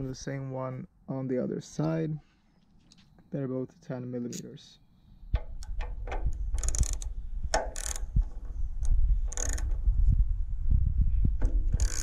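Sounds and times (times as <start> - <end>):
ratchet wrench clicking: 6.6 - 8.2, 8.8 - 9.7, 11.8 - 12.0.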